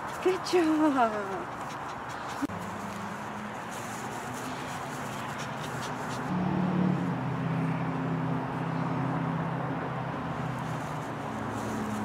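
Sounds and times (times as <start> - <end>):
outdoor background noise: 0.0 - 12.0
vehicle engine humming: 0.0 - 12.0.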